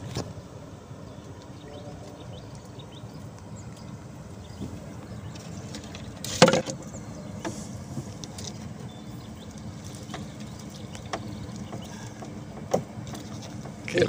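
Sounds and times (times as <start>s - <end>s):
low background hum: 0.0s - 14.0s
knocks on wooden boat: 11.1s - 13.8s.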